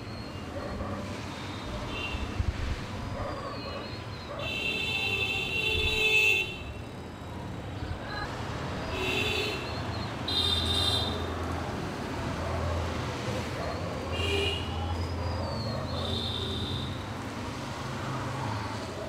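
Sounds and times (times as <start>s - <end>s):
vehicle horns honking: 1.6s - 2.4s, 4.4s - 6.8s, 8.9s - 11.3s, 14.1s - 14.9s, 16.0s - 17.1s.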